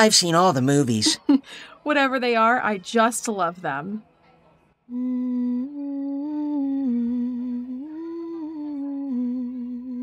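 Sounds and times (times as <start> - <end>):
woman humming: 4.9 - 10.0.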